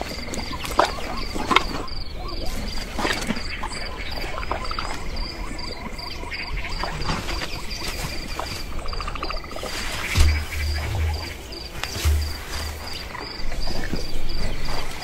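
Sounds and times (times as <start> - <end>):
insects chirping: 0.0 - 15.0
low rumble: 10.2 - 13.0.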